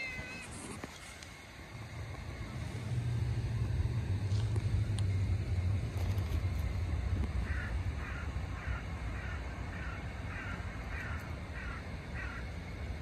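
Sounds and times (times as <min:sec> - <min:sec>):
low rumble: 0:01.6 - 0:12.1
crow cawing: 0:07.4 - 0:12.6.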